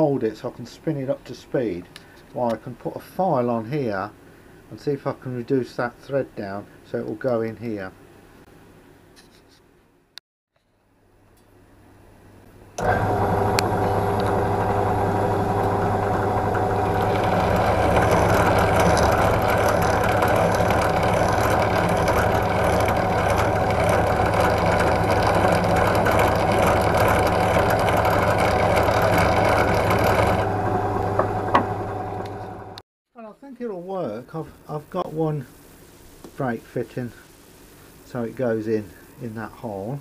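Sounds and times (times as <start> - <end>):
pillar drill motor running: 12.8 - 32.8
file rasping on metal: 16.9 - 30.4.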